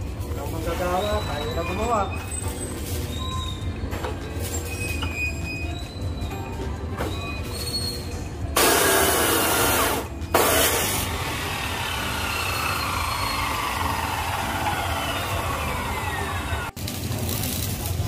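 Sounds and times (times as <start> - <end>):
angle grinder running: 8.8 - 16.7.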